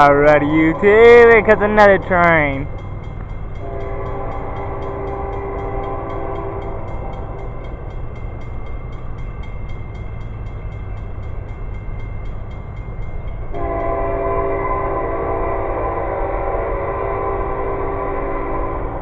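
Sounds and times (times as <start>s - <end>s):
train rumbling: 0.0s - 19.0s
train horn: 3.6s - 7.6s, 13.5s - 19.0s.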